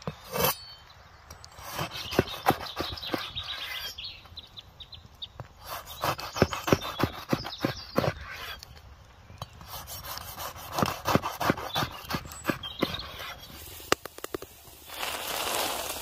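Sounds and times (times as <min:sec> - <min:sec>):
knife sawing through bread: 0:01.6 - 0:03.9, 0:05.6 - 0:08.6, 0:09.6 - 0:13.5
bread sizzling on griddle: 0:13.4 - 0:16.0.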